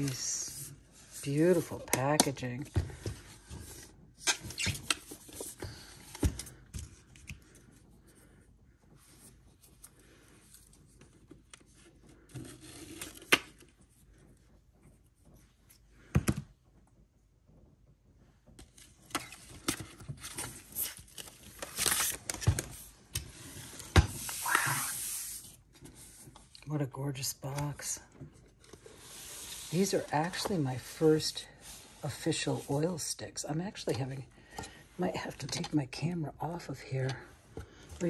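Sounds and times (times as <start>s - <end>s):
cardboard rustling: 18.6s - 26.5s.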